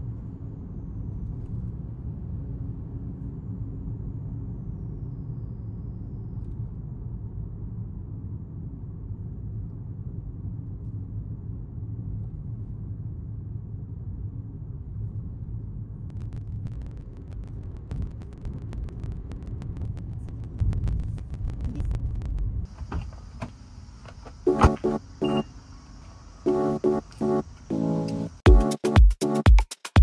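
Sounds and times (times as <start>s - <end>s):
road and engine rumble in car: 6.4s - 19.1s
low surges: 13.4s - 28.4s
thin steady hiss: 22.6s - 28.4s.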